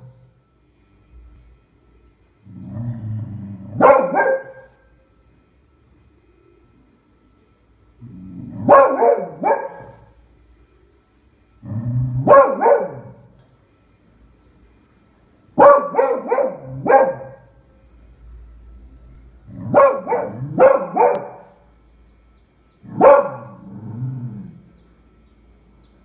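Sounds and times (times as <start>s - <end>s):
dog barking: 3.7s - 4.8s, 8.6s - 10.1s, 12.2s - 13.3s, 15.6s - 17.5s, 19.6s - 21.6s, 22.9s - 23.7s.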